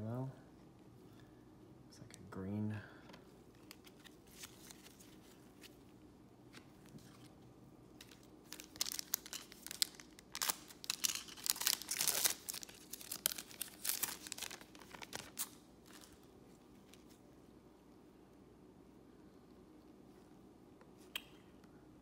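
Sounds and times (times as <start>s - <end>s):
foil wrapper tearing and crinkling: 8.0s - 16.2s.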